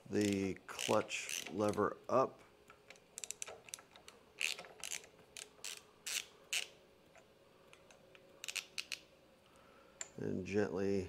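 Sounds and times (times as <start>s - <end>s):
hand ratchet clicking: 0.1s - 1.9s, 2.9s - 6.7s, 7.7s - 9.0s.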